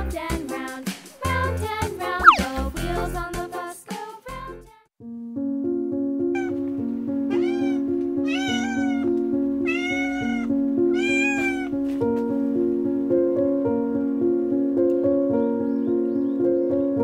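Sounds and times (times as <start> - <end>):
cat meowing: 2.2 - 2.5, 6.4 - 6.6, 7.3 - 11.8
background music with held notes: 4.5 - 17.0.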